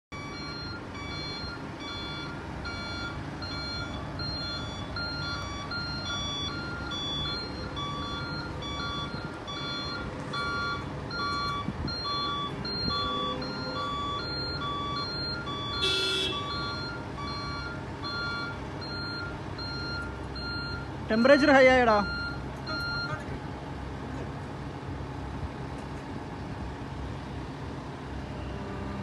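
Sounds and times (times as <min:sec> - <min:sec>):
machinery warning beeper: 0:00.1 - 0:23.2
heavy vehicle engine running: 0:00.1 - 0:29.0.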